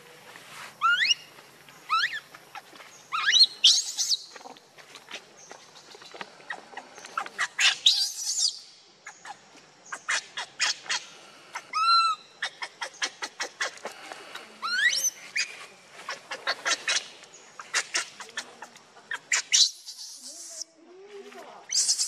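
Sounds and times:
monkeys squealing and screaming: 3.1 - 4.2, 14.6 - 15.5, 16.1 - 18.5, 19.1 - 20.6, 21.7 - 22.0.

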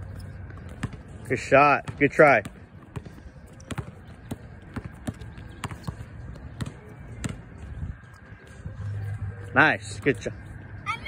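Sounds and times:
basketball bouncing on concrete: 0.3 - 7.6.

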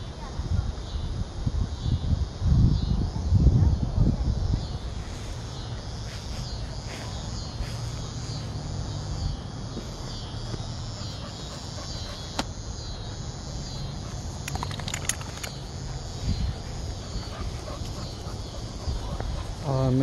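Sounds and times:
insects chirring: 0.0 - 20.0
sharp clicks: 14.4 - 15.7.

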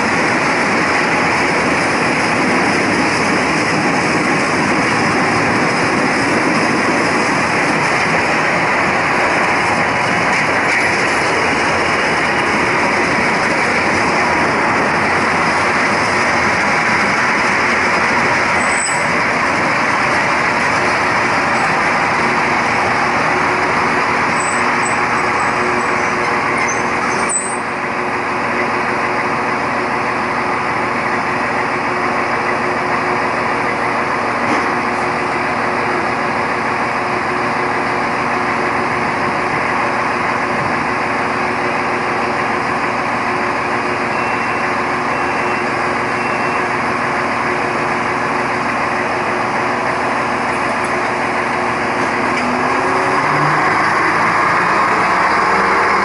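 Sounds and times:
diesel railcar engine: 0.0 - 56.0
wheels running on rails: 0.0 - 56.0.

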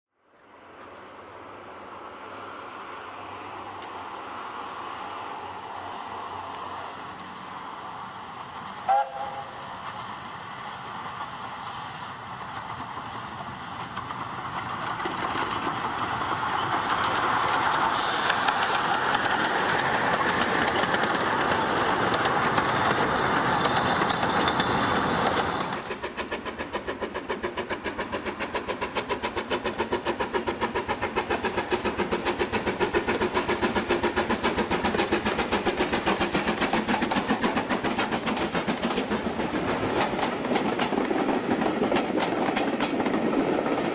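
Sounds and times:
steam locomotive running past: 0.6 - 43.9
steam locomotive exhaust beat: 8.2 - 43.9
steam locomotive whistle: 8.8 - 9.6.

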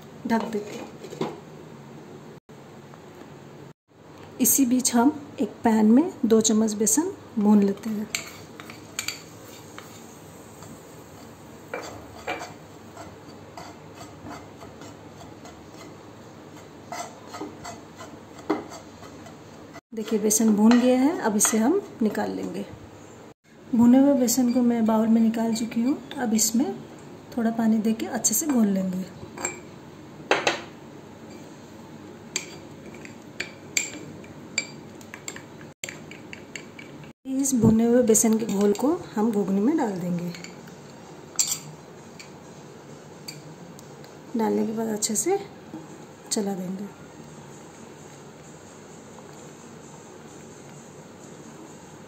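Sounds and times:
spoon scraping frying pan: 8.0 - 21.9.

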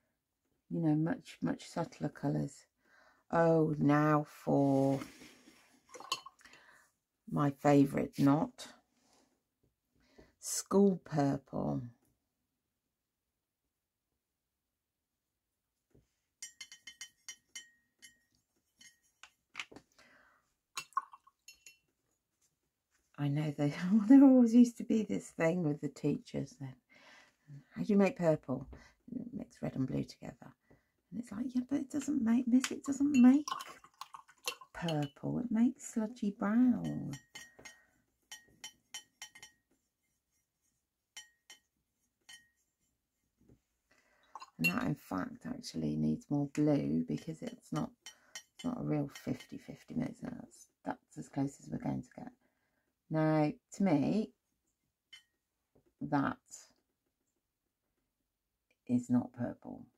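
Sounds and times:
paintbrush clinking on ceramic: 5.9 - 6.4, 16.4 - 19.5, 20.8 - 22.0, 32.6 - 35.3, 36.6 - 42.9, 44.3 - 45.0, 47.2 - 49.7, 55.1 - 55.4.

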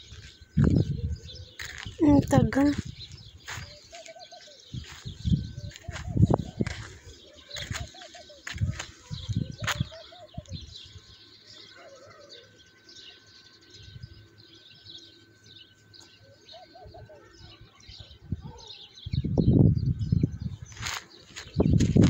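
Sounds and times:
low rumble on microphone: 0.0 - 3.8, 4.7 - 11.2, 18.0 - 22.0
doves cooing: 0.0 - 19.3
small birds chirping: 0.0 - 22.0.

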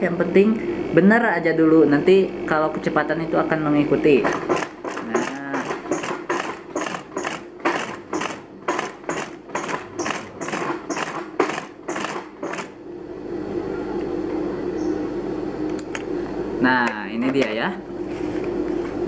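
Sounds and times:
treadle sewing machine stitching: 4.3 - 12.8.

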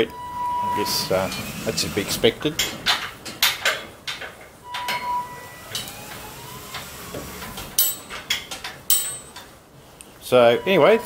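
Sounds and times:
wheel squeak: 0.0 - 3.1.

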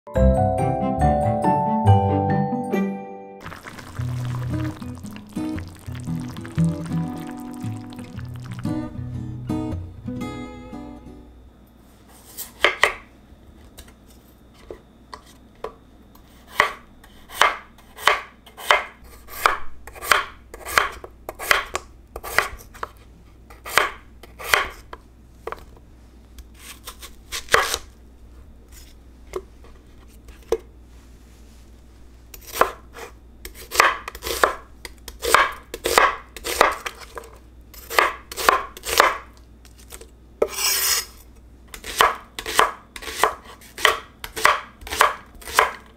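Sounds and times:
knife scraping: 26.5 - 27.9, 32.3 - 34.5, 39.6 - 43.9.

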